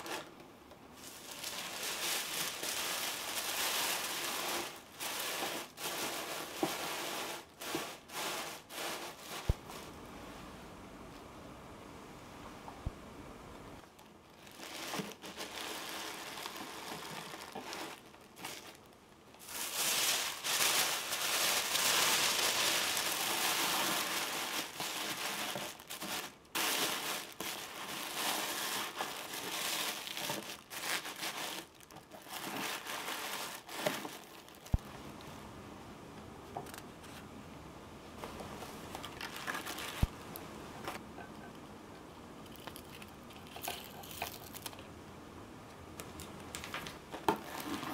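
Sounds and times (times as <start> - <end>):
tissue paper crinkling: 0.0 - 0.3, 1.0 - 10.0, 13.9 - 34.9, 38.2 - 40.4, 46.5 - 47.9.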